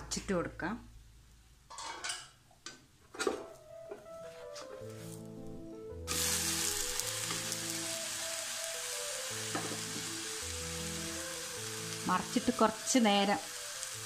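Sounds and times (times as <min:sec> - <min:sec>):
soft background music: 0:03.1 - 0:14.0
food sizzling in oil: 0:06.1 - 0:14.0.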